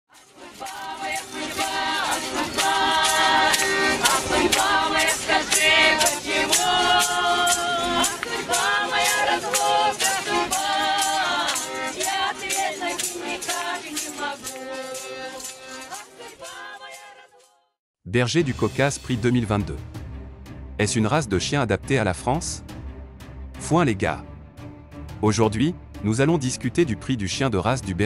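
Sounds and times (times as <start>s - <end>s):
rattling percussion beat: 0.2s - 16.5s
button accordion: 0.2s - 16.9s
voices singing together: 0.2s - 17.5s.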